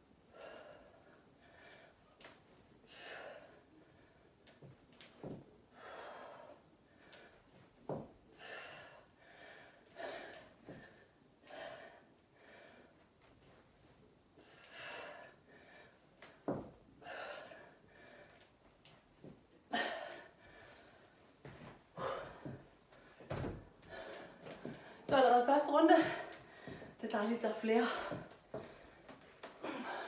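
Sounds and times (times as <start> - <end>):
woman breathing hard: 0.2 - 2.2, 2.8 - 4.4, 5.7 - 7.5, 8.3 - 13.1, 14.4 - 18.6, 19.7 - 25.1, 25.9 - 27.0, 27.8 - 30.0.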